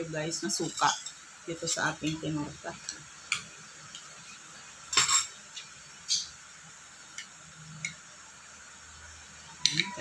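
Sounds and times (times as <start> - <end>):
spoon and glass bowl clinking: 4.9 - 5.4.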